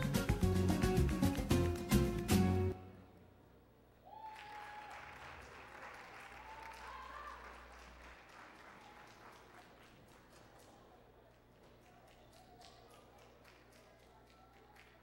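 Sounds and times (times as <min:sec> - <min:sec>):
high held cheer: 0:04.0 - 0:09.6
crowd applauding: 0:04.1 - 0:15.0.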